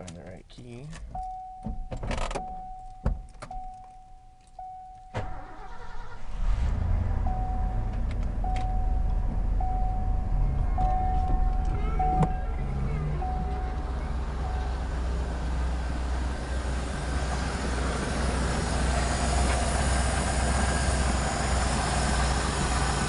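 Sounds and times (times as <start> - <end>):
keys clicking into ignition: 0.0 - 6.1
dashboard warning chime: 0.8 - 5.6, 7.2 - 16.1
engine starting and idling: 5.1 - 23.0.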